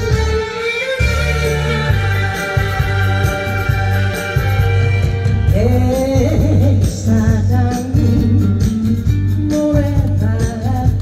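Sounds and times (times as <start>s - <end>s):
amplified accompaniment with bass beat: 0.0s - 11.0s
woman singing into microphone: 5.4s - 11.0s.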